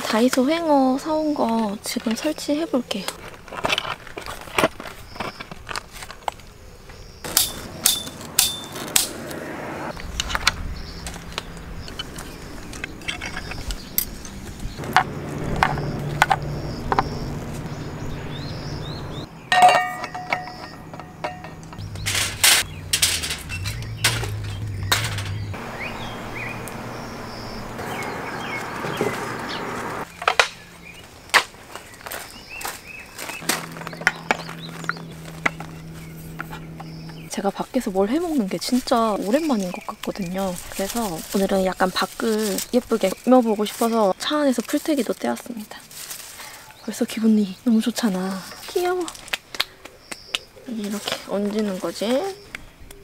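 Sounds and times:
camping gear knocking and clattering: 3.0 - 6.5, 7.2 - 9.1, 10.0 - 17.2, 19.4 - 25.6
low hum: 7.3 - 31.0, 33.3 - 38.8
rising bird chirps: 8.1 - 31.1, 31.7 - 37.4
metal hooks clinking and knocking: 19.5 - 25.5.

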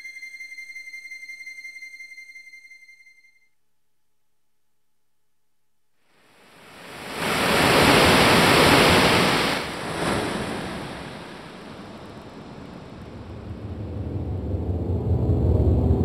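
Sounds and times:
rushing wind-like noise: 6.4 - 16.0
low rumble: 10.7 - 16.0.

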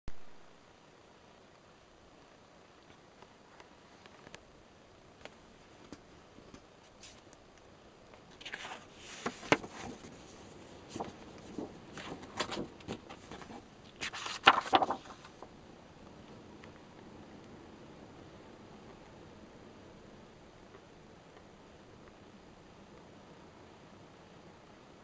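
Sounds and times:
paper pages rustling: 8.2 - 15.5.

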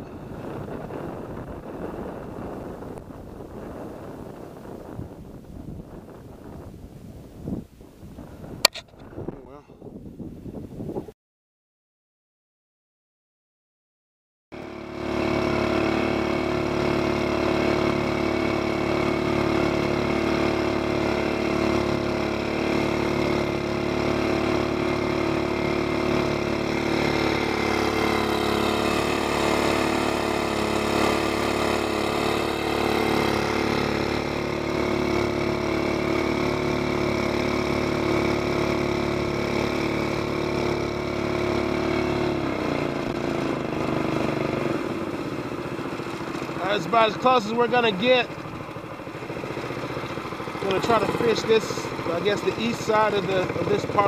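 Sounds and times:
boat engine: 0.0 - 6.6, 14.6 - 54.0
water rushing along hull: 14.6 - 54.0.

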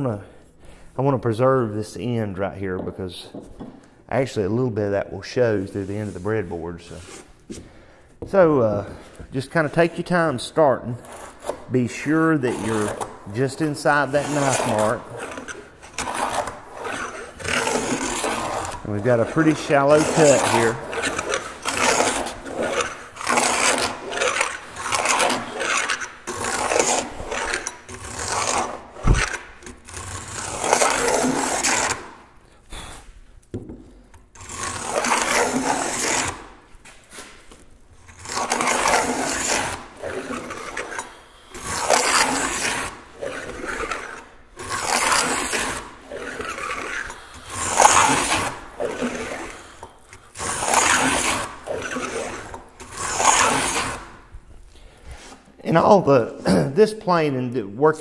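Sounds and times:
plane rasping on wood: 9.7 - 32.2, 34.4 - 37.4, 38.0 - 54.2.

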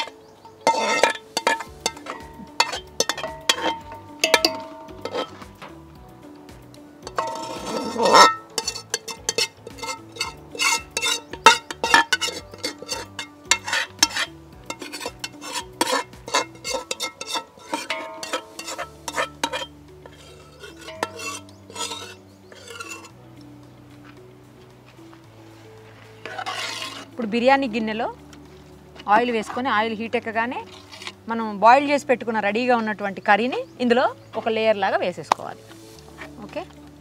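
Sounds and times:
metal utensil scraping a pot: 0.0 - 5.8, 7.0 - 23.2, 26.2 - 28.4, 29.0 - 31.6
background music with bass line: 0.0 - 37.0.

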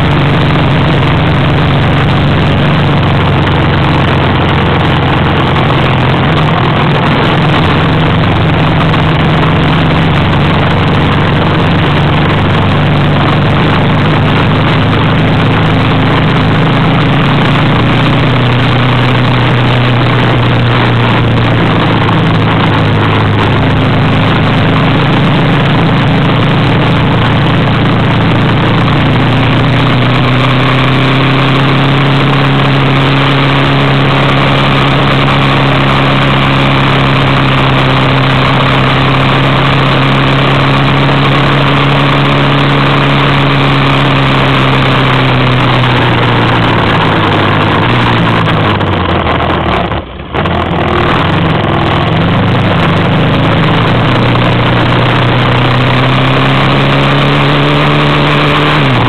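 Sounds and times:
thick rushing noise: 0.0 - 59.0
vehicle engine driving on sand: 0.0 - 59.0.

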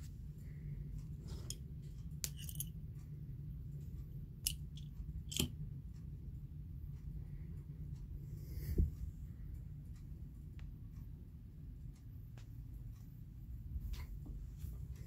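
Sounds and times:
low steady rumble: 0.0 - 15.0
faint clicks and taps: 11.8 - 15.0.

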